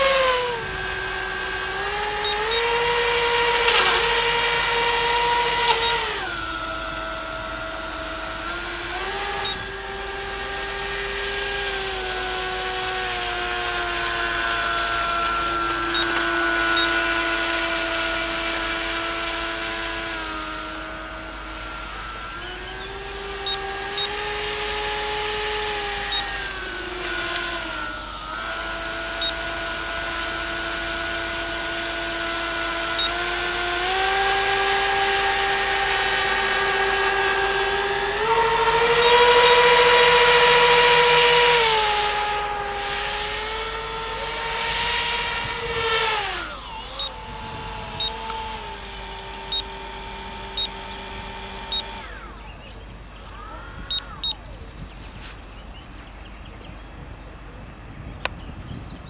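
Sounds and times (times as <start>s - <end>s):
electric motors whining: 0.0s - 59.0s.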